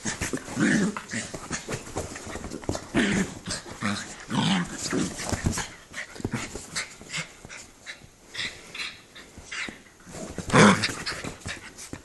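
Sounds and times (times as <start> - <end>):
small dog growling: 2.9 - 5.2.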